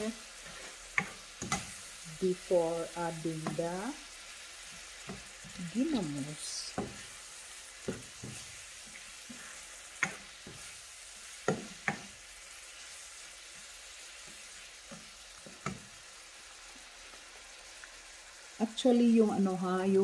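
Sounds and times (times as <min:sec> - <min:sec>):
vegetables sizzling in frying pan: 0:00.0 - 0:20.0
spoon clacking on pan: 0:00.9 - 0:02.0, 0:04.6 - 0:12.8, 0:13.6 - 0:16.0.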